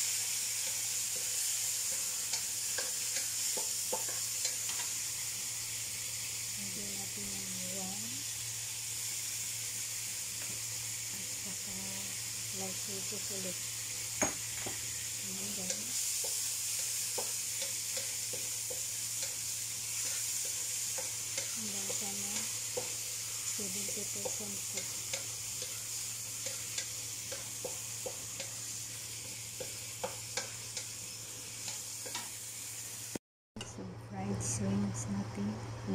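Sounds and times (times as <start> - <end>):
shrimp sizzling in hot oil: 0.0 - 33.2
wooden spatula scraping wok: 19.9 - 24.4.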